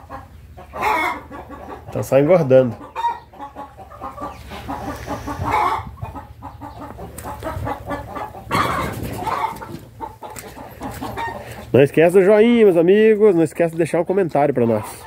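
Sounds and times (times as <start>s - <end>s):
chickens clucking: 0.0s - 15.0s.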